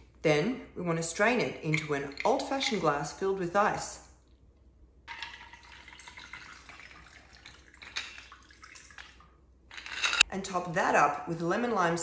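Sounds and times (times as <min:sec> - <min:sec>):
liquid pouring into glass: 0:05.1 - 0:09.2.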